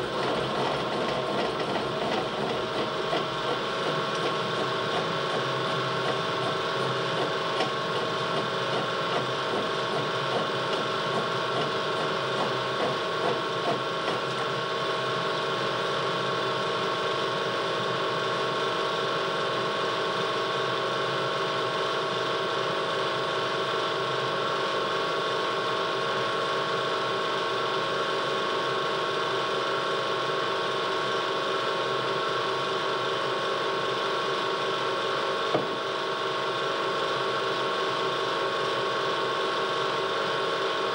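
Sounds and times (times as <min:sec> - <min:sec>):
potter's wheel whirring and rattling: 0:00.0 - 0:22.7.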